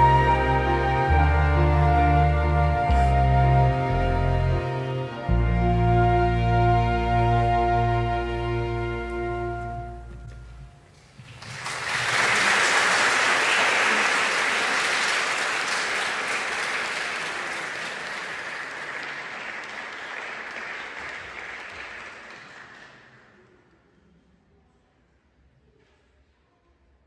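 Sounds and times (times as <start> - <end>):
audience applauding: 11.0 - 23.5.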